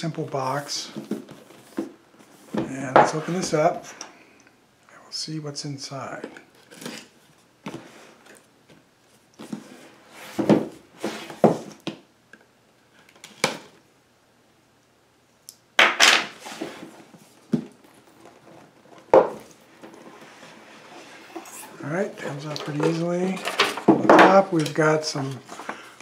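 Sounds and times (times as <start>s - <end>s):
cardboard sliding: 9.4s - 11.7s, 16.4s - 17.4s, 18.0s - 23.6s.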